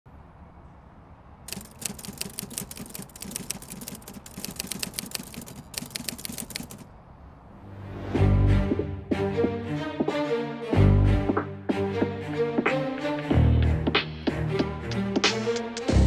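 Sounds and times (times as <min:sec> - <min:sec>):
keyboard typing clicks: 0:01.5 - 0:06.9.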